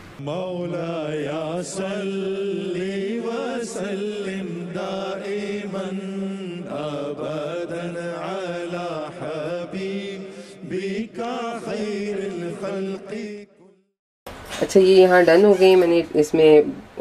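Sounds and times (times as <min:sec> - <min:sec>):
chanted vocal melody: 0:00.0 - 0:13.7.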